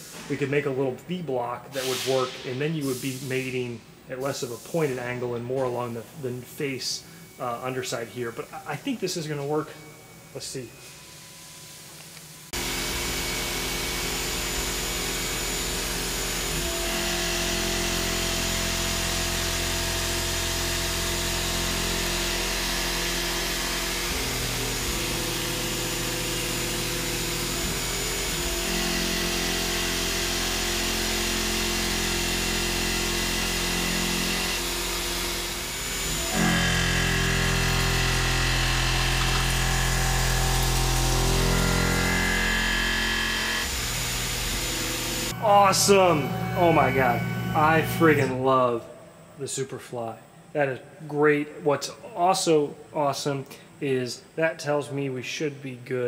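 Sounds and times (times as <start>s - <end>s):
milling machine cutting aluminum: 12.6s - 48.3s.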